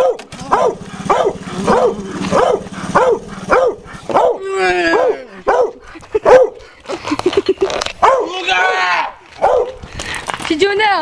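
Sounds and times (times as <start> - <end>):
dog barking excitedly: 0.0 - 6.6, 8.0 - 8.8, 9.4 - 9.8
dog howling bark: 0.0 - 6.6, 8.0 - 9.8.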